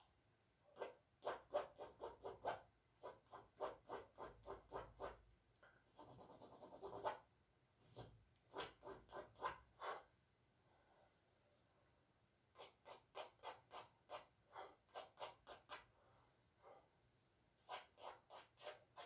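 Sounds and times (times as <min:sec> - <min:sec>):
charcoal scratching on canvas: 0:00.8 - 0:05.2, 0:06.0 - 0:07.2, 0:07.8 - 0:10.1, 0:12.5 - 0:15.9, 0:17.6 - 0:19.0
charcoal rubbing stroke: 0:17.6 - 0:19.0.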